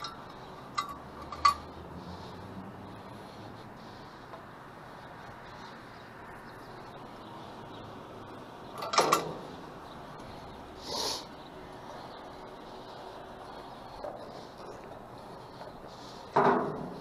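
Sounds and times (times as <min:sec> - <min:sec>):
steady hiss: 0:10.7 - 0:14.6.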